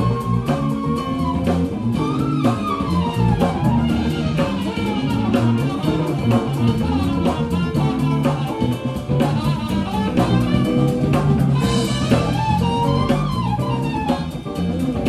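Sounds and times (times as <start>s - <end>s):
bass line: 0.0s - 15.0s
drum kit keeping time: 0.0s - 15.0s
hollow-body guitar: 0.0s - 15.0s.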